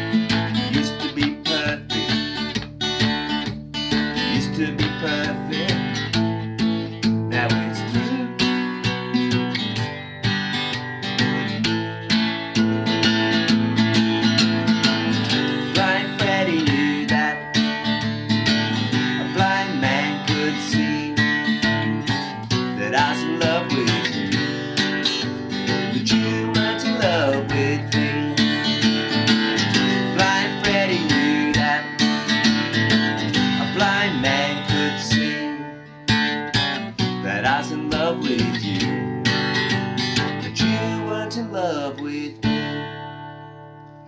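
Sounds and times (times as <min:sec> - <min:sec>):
acoustic guitar strumming: 0:00.0 - 0:44.0.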